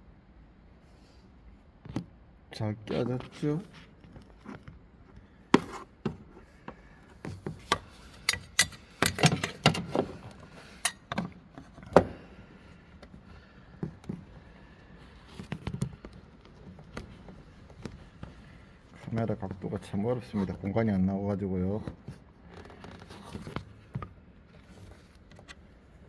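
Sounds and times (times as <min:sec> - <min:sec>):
car parts clicking and knocking: 0:04.4 - 0:12.3.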